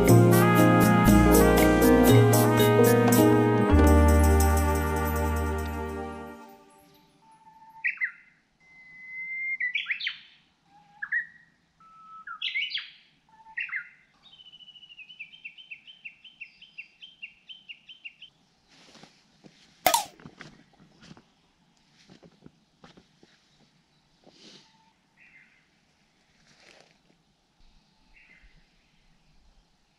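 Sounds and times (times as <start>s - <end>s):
birds singing: 7.2s - 18.3s
sharp click or knock: 19.9s - 20.1s.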